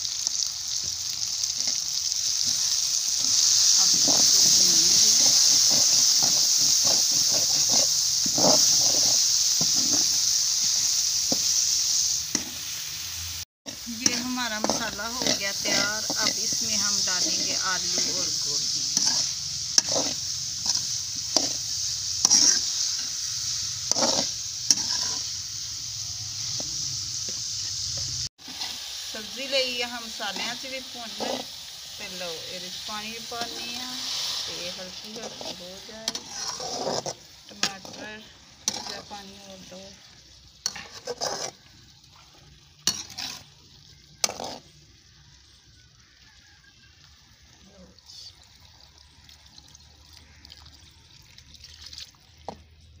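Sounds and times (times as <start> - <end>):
vegetables sizzling in a pan: 0.0 - 53.0
metal spoon stirring and scraping: 2.4 - 11.7, 13.7 - 23.2, 23.8 - 25.3, 28.4 - 28.9, 30.1 - 39.8, 40.6 - 43.6, 44.2 - 44.7.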